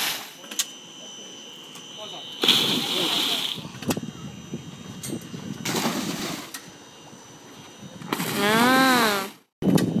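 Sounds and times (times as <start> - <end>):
person's drawn-out call: 8.3 - 9.4.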